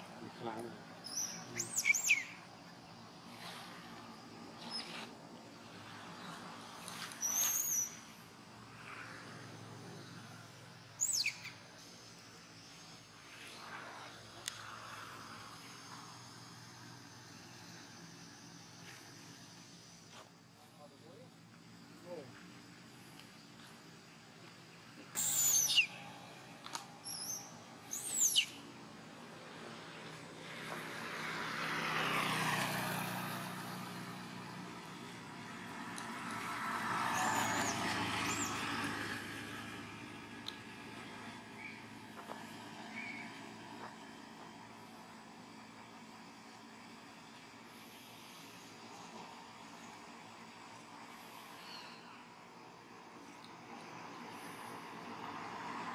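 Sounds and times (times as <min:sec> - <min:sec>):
monkeys squeaking: 0:01.0 - 0:02.4, 0:25.2 - 0:26.0
high falling whistle calls: 0:01.1 - 0:02.4, 0:07.2 - 0:08.0, 0:25.1 - 0:26.0
wavering monkey squeal: 0:25.2 - 0:25.9.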